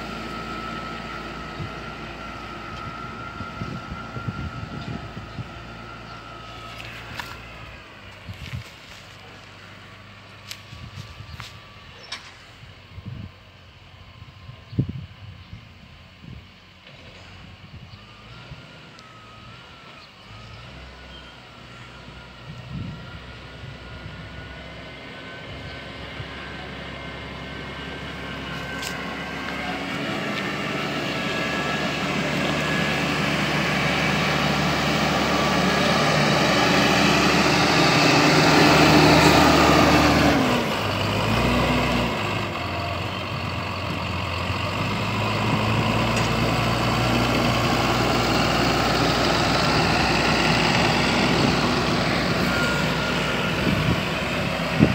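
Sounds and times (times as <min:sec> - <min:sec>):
tractor diesel engine running: 0:00.0 - 0:54.9.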